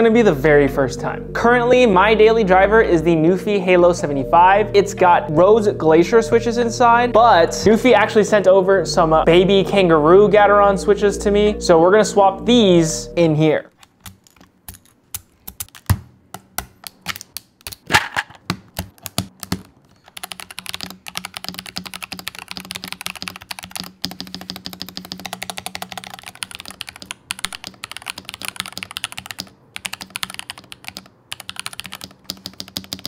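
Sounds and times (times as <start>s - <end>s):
fast mechanical keyboard typing: 13.8s - 16.0s, 18.7s - 33.0s.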